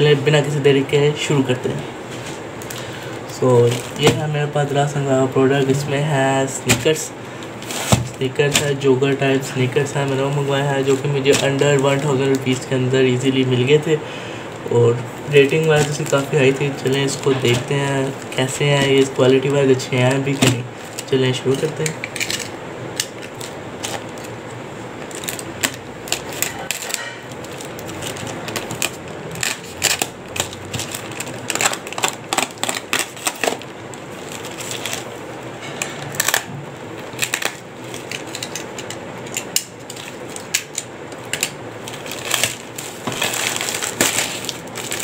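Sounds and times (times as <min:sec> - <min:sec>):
plastic bag crumpling and tearing: 0:02.7 - 0:04.7, 0:14.6 - 0:24.4, 0:25.0 - 0:35.2, 0:35.9 - 0:45.0.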